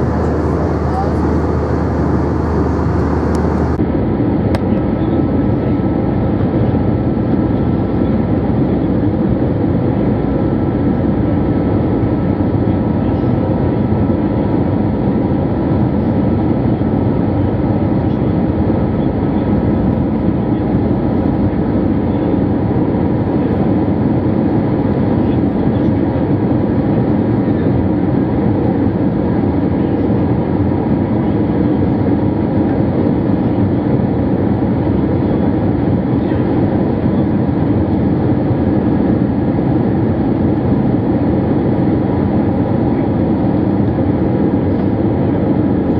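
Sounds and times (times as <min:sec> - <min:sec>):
faint high whine: 0:00.0 - 0:03.8
aircraft cabin engine rumble: 0:00.0 - 0:45.9.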